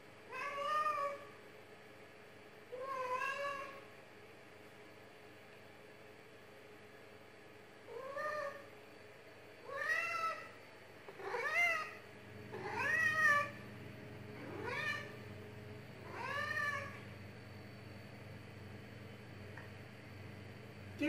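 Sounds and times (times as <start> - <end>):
cat meowing: 0.3 - 1.3, 2.8 - 3.8, 7.9 - 8.7, 9.7 - 10.6, 11.2 - 12.0, 12.6 - 13.6, 14.4 - 15.2, 16.1 - 17.0.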